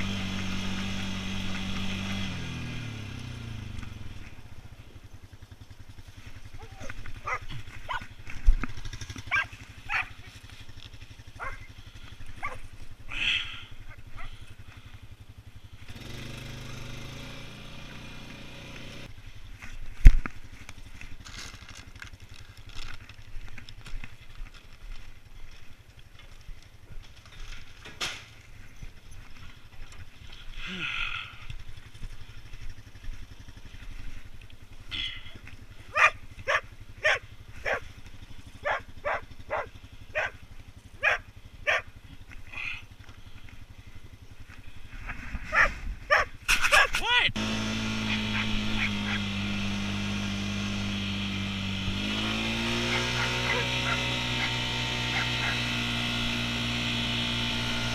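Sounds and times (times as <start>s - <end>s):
atv engine idling: 0.0s - 57.9s
dog barking: 7.2s - 8.1s, 9.3s - 10.3s, 11.4s - 11.7s, 12.4s - 12.6s, 14.2s - 14.4s, 35.9s - 37.8s, 38.6s - 40.4s, 41.0s - 41.9s, 45.5s - 47.0s, 48.1s - 49.2s, 52.9s - 54.5s, 55.1s - 55.6s.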